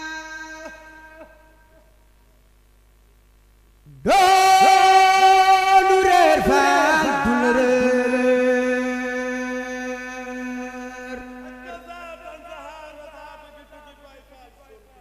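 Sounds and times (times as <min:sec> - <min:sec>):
solo voice chanting: 0:00.0 - 0:02.0, 0:03.8 - 0:15.0.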